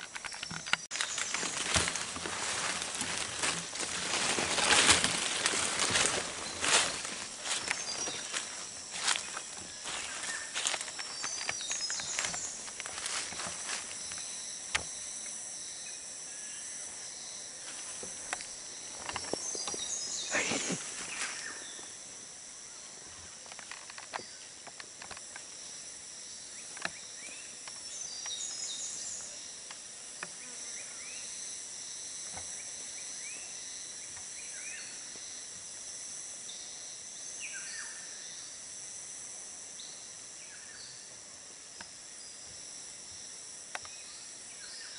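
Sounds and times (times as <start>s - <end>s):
rustling: 0.0s - 14.2s
insects chorus: 0.0s - 44.9s.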